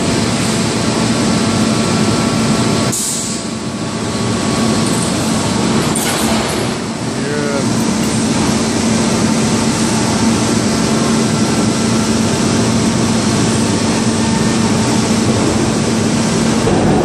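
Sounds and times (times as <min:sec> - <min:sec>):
rolling mill industrial din: 0:00.0 - 0:17.0.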